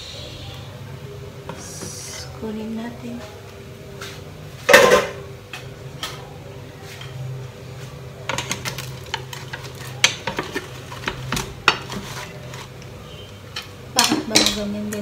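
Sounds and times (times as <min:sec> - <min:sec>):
metal pot lid clatter: 0:04.7 - 0:05.2
aluminium foil crinkling: 0:08.3 - 0:13.0.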